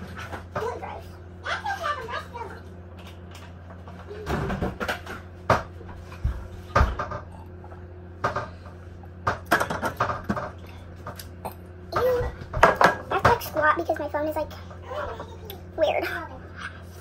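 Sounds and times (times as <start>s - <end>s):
steady low hum: 0.0s - 17.0s
dishes knocking and clattering: 3.0s - 7.4s, 8.2s - 11.2s, 11.9s - 13.6s.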